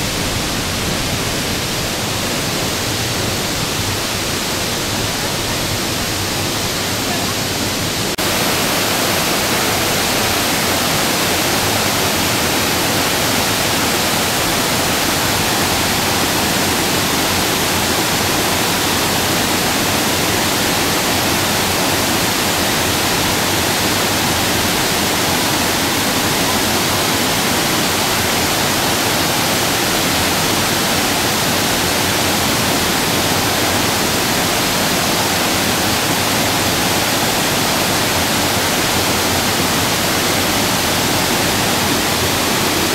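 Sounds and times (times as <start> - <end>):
waterfall rushing: 0.0 - 42.9.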